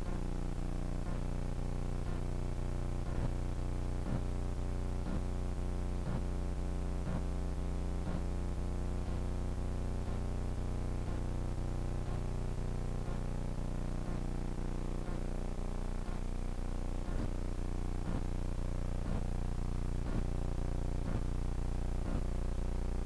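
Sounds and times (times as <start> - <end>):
electrical hum and buzz: 0.0 - 23.0
faint ticking: 2.0 - 2.2, 3.1 - 3.3, 17.1 - 17.3, 18.0 - 18.2, 20.0 - 20.2, 21.0 - 21.2.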